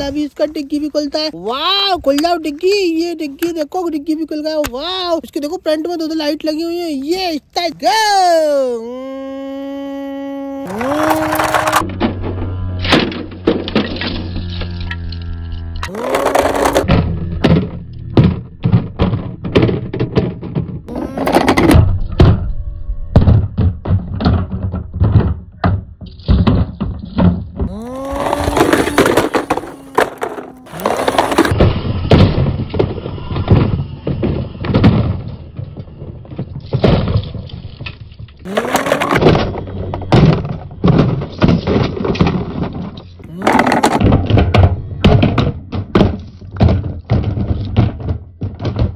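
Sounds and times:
toy cars clattering on rock: 10.7s - 22.3s, 23.8s - 48.9s.

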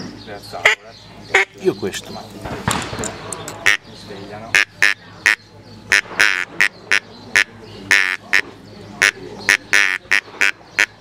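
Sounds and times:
duck call quacking notes: 0.6s - 1.6s, 3.6s - 3.8s, 4.5s - 8.4s, 9.0s - 11.0s.

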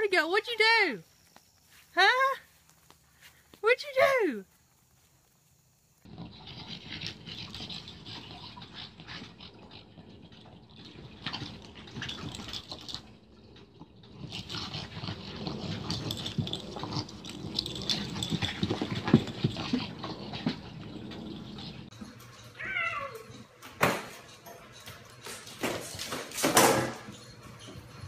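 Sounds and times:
cat meowing: 22.6s - 23.3s.

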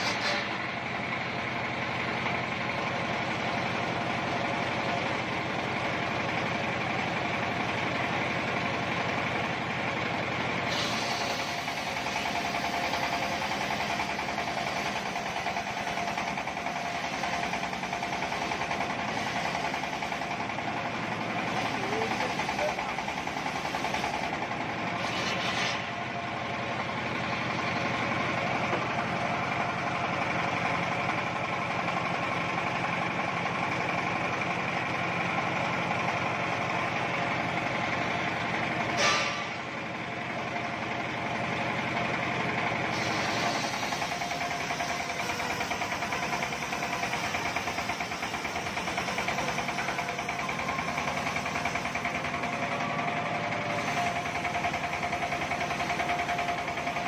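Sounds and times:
brief sharp noise: 39.0s - 39.6s.

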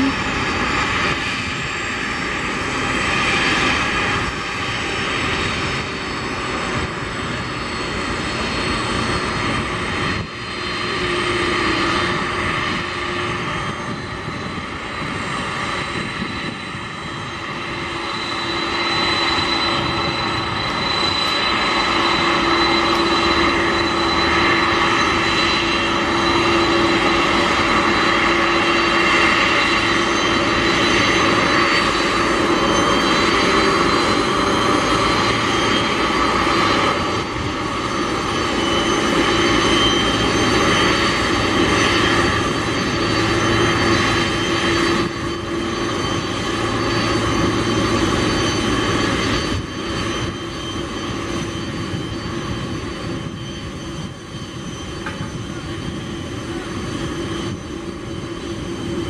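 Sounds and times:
jet engines taxiing: 0.0s - 59.0s.

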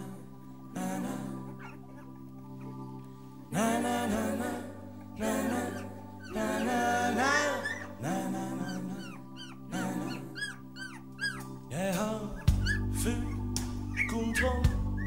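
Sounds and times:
music with melodic lead: 0.0s - 15.0s
puppies squeaking: 5.5s - 14.4s.

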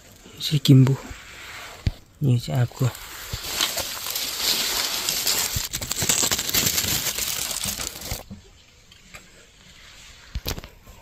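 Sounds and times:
crinkling crackling rustle: 0.0s - 8.5s.

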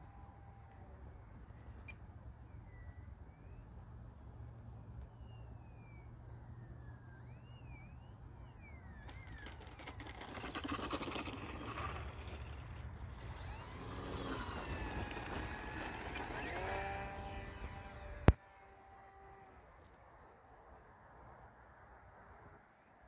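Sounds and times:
small electric motor whining: 7.2s - 19.9s.

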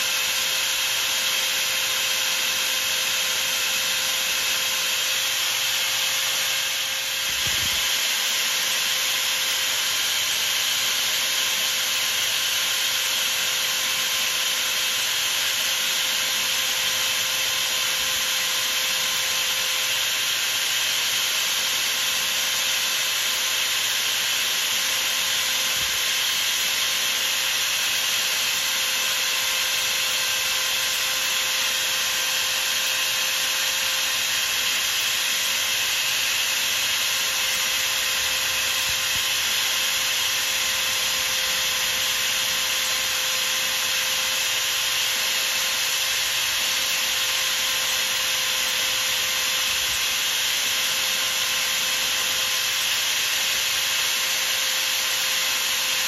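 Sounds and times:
lathe motor whine: 0.0s - 56.0s.

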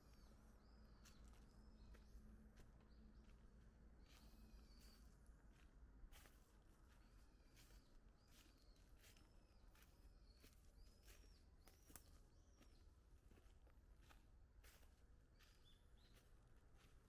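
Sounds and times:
small bird chirping: 7.4s - 13.0s.

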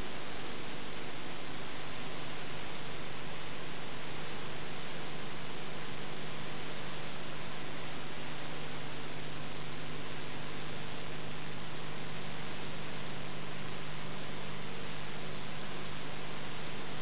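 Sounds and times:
low electrical hum: 0.0s - 17.0s
steady film hiss: 0.0s - 17.0s.

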